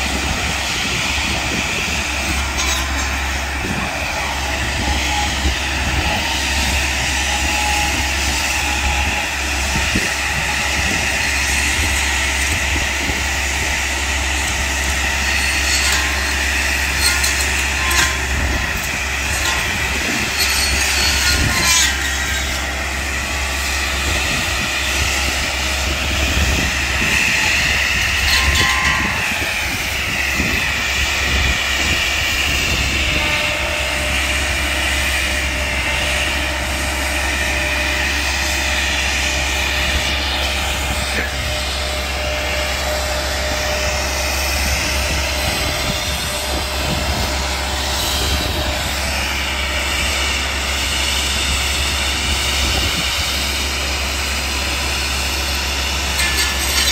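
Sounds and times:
circular saw whining: 0.0 - 56.9
machine engine running: 0.0 - 56.9.

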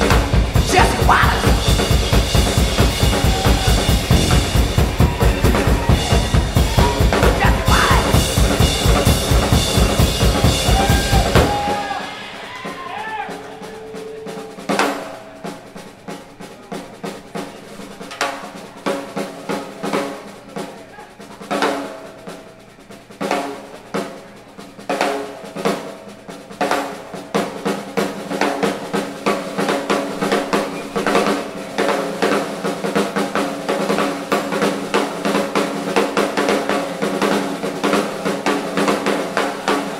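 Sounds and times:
drum solo: 0.0 - 39.9
live band playing loudly: 0.0 - 39.9
faint held tones: 13.4 - 15.3.

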